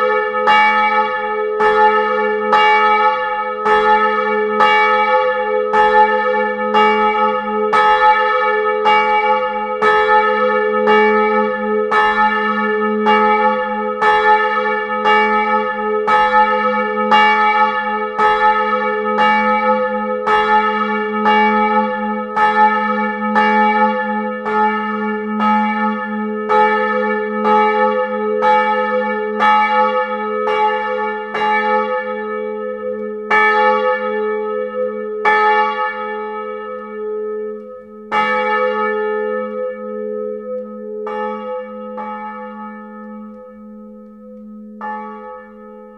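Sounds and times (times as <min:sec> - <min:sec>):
church bell ringing: 0:00.0 - 0:45.9.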